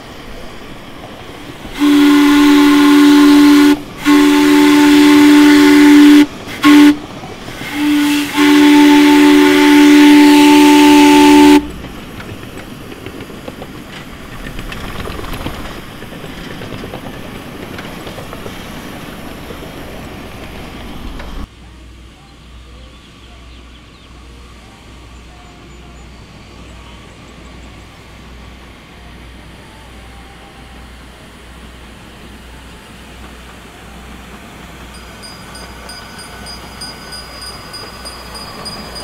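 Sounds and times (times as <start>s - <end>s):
steam whistle blasts: 1.7s - 7.0s, 7.6s - 11.8s
steam engine running: 28.0s - 39.0s.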